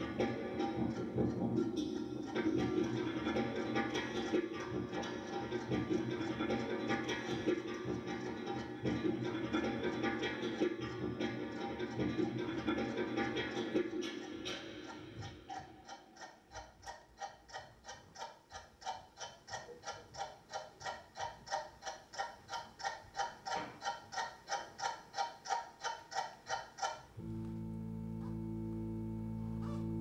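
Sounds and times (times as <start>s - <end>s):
mechanical ticking with ring: 14.0s - 27.0s
held low chord: 27.2s - 30.0s.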